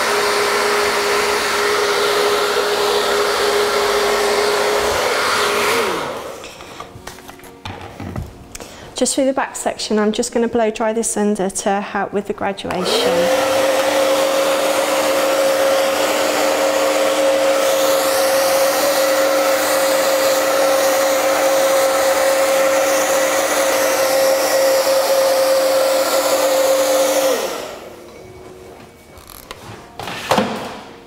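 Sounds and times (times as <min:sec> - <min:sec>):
hair dryer motor winding down: 0:00.0 - 0:06.9, 0:12.7 - 0:28.0
hair dryer blowing: 0:00.0 - 0:07.0, 0:12.7 - 0:28.1.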